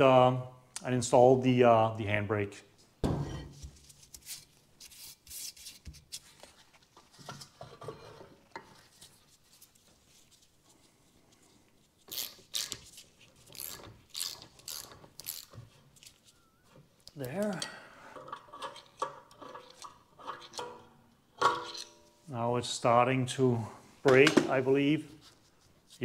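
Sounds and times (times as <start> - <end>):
light metal scrapes and clicks: 18.2 - 22.1.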